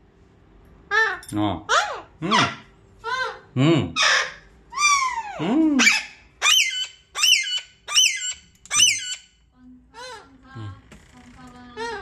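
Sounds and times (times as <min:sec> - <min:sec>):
parakeet calling and screeching: 0:00.9 - 0:03.4, 0:04.0 - 0:10.3.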